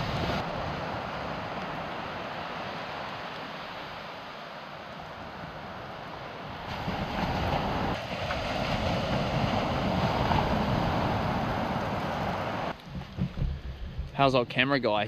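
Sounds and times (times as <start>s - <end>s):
surf washing on beach: 0.0s - 13.2s
wind buffeting microphone: 5.0s - 14.6s.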